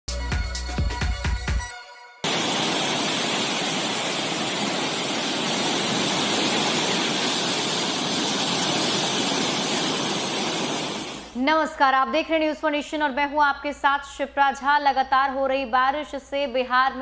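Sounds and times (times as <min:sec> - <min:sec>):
turbulent water rushing: 0:02.3 - 0:11.3.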